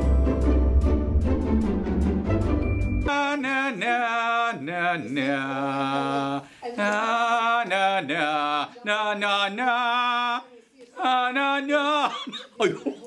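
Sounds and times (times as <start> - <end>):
man singing: 3.1 - 13.0.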